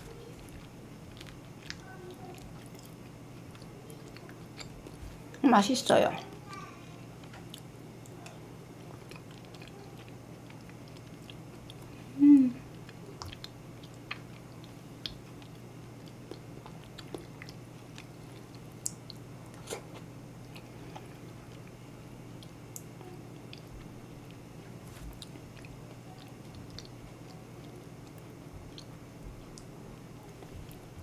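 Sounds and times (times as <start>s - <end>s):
close chewing and mouth sounds: 0.0s - 5.4s, 6.2s - 31.0s
person humming: 12.1s - 12.6s.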